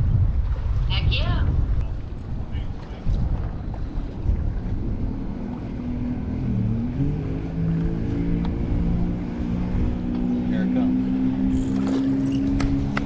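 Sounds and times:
wind rumbling on microphone: 0.0 - 13.0
boat motor humming: 0.3 - 13.0.

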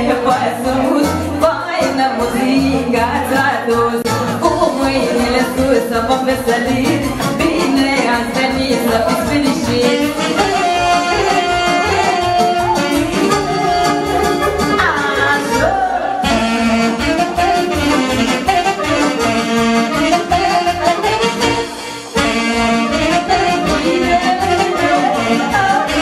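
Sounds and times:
live band party music: 0.0 - 26.0
saxophone melody: 6.8 - 26.0.

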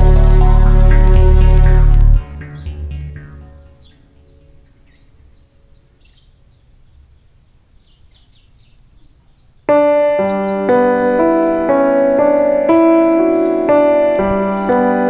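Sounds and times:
loud keyboard chord music: 0.0 - 4.3, 9.7 - 15.0
faint bird chirps: 2.4 - 15.0.

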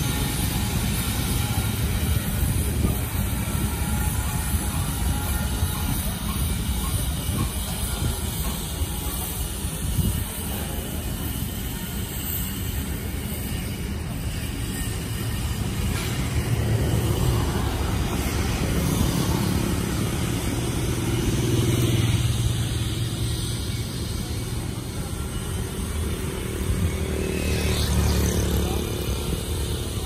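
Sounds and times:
motor vehicles passing: 15.4 - 30.0.

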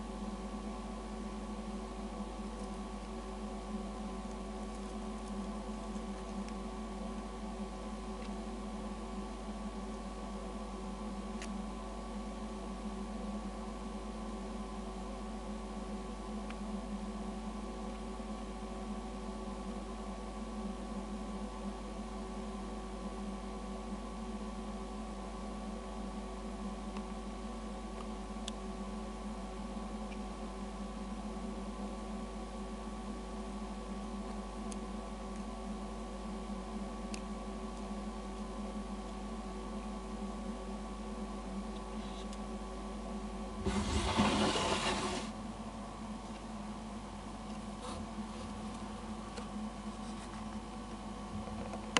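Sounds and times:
low droning hum: 0.0 - 14.5.

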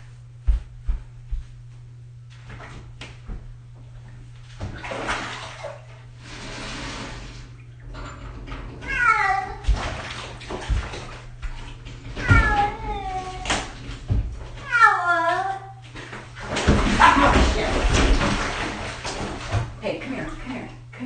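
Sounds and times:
steady low hum: 0.0 - 21.0
bath water splashing: 4.1 - 6.8, 8.9 - 20.8
cat meowing: 8.8 - 9.7, 12.2 - 13.5, 14.6 - 15.8.

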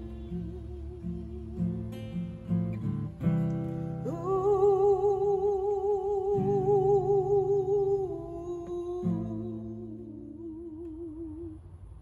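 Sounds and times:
acoustic guitar chords: 0.0 - 12.0
woman singing a held note: 4.0 - 11.8.

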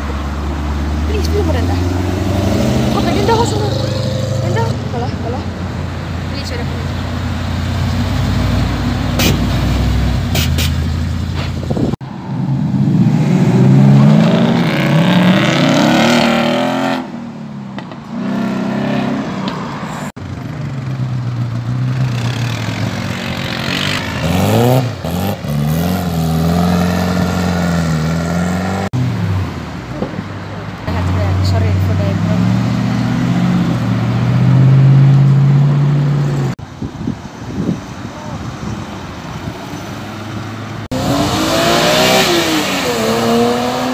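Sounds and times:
car engines accelerating away: 0.0 - 36.6, 37.5 - 43.9.

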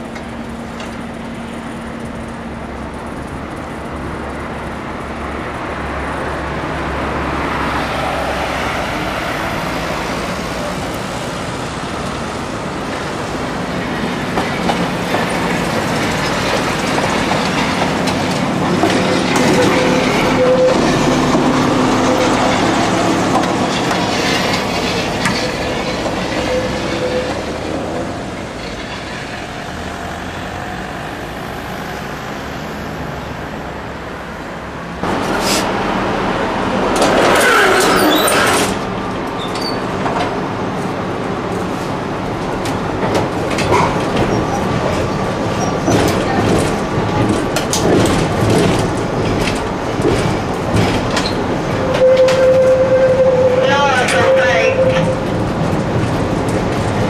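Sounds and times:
tram passing with whine: 0.0 - 57.0
wheels clicking on track: 10.1 - 33.3, 42.2 - 57.0.

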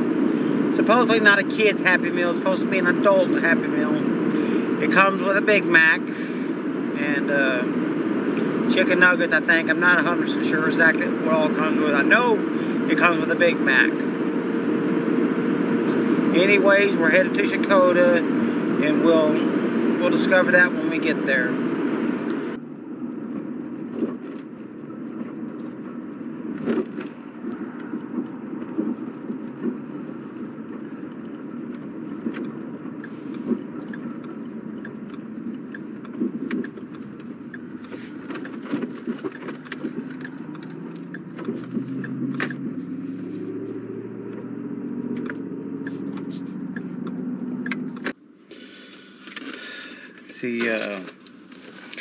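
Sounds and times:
car road and engine rumble: 0.0 - 52.0
small clicks and rattles: 23.8 - 42.6
light evenly spaced ticks: 29.6 - 38.5, 39.2 - 43.6, 44.2 - 48.0.

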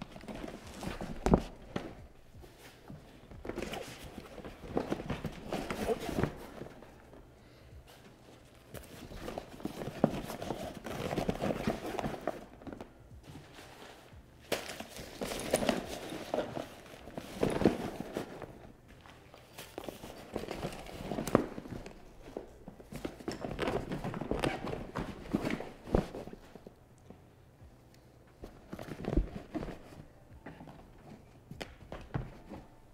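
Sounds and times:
packing material rustling: 0.0 - 7.3, 7.9 - 26.7.

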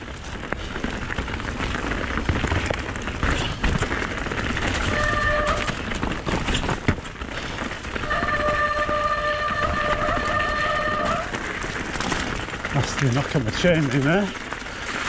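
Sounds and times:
bike tyres rumbling on gravel: 0.0 - 15.0
disc brakes squealing: 8.2 - 11.4.

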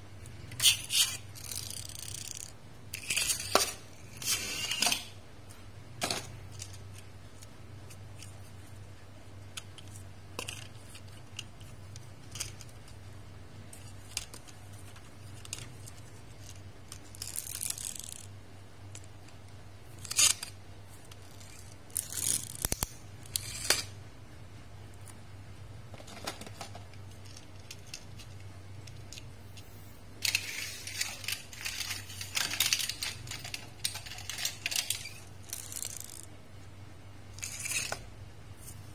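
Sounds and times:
toy cars rattling on tabletop: 0.6 - 5.1, 30.2 - 36.3.

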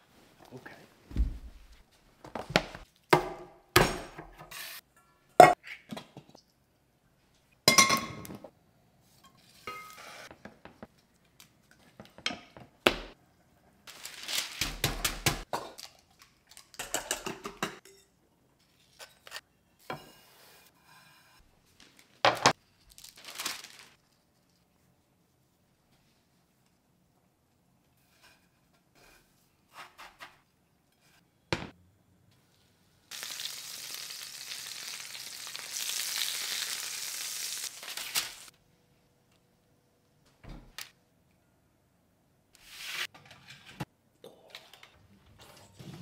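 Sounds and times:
baking paper rustling: 13.9 - 14.9, 21.7 - 24.7, 36.8 - 38.5.

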